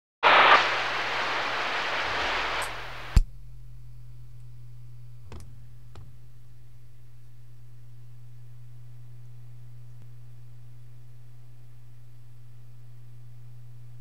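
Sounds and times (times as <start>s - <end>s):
radio static hiss: 0.2s - 3.2s
radio click: 0.3s - 3.2s
steady low hum: 0.3s - 14.0s.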